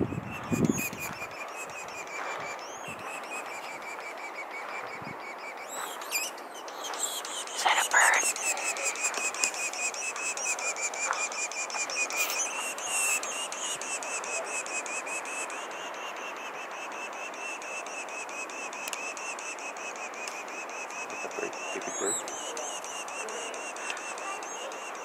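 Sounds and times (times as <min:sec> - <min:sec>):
animal chirring: 0:05.6 - 0:25.0.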